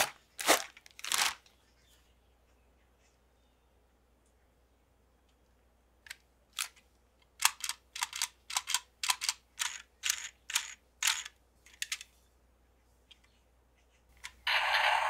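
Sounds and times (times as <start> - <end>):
plastic toy clicks and scrapes: 7.4 - 12.1.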